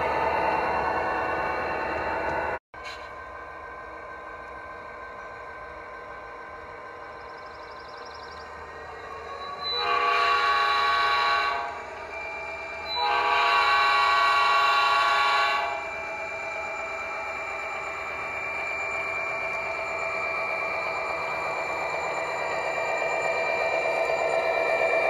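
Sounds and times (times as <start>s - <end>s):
simulated diesel engine: 0.0s - 25.0s
model locomotive horn blasts: 9.7s - 11.9s, 12.8s - 16.0s.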